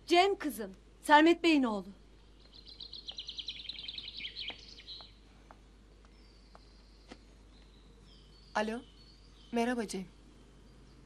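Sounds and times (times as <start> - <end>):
faint high bird calls: 2.2 - 5.2, 6.0 - 11.0
songbird trilling: 2.3 - 5.2.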